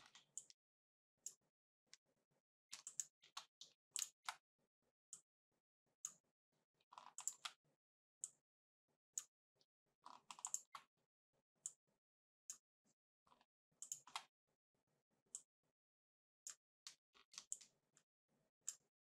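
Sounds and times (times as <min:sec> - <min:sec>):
mouse and keyboard clicks: 0:07.0 - 0:07.5.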